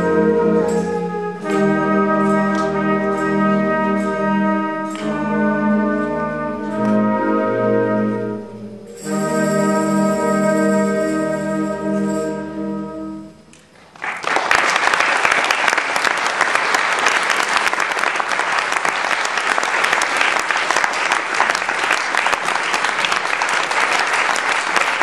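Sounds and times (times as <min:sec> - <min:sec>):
wind band held chord: 0:00.0 - 0:13.5
audience applause: 0:13.8 - 0:25.0.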